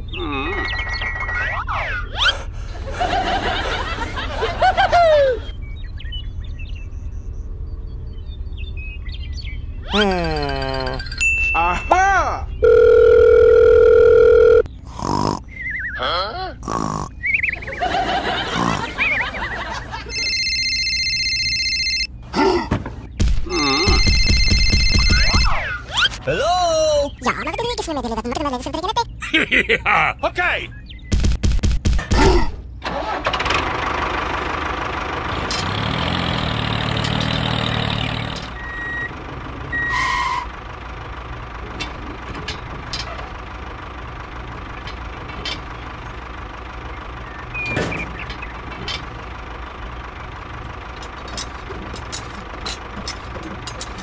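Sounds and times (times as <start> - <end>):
grunting vocal effects: 0.1 - 0.7, 14.9 - 17.2
cartoon snore and whistle: 2.1 - 2.5
high-pitched snickering laugh: 2.8 - 5.5, 17.6 - 20.1
electronic telephone ringtone: 12.6 - 14.7, 20.0 - 22.1, 23.6 - 25.6.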